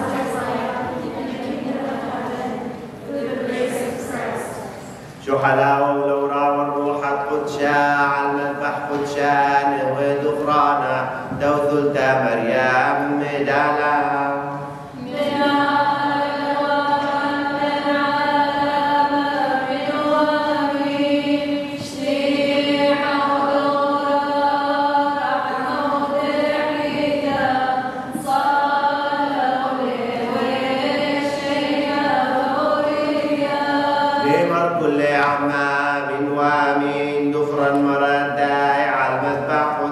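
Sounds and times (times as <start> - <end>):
voices chanting: 0.0 - 39.9.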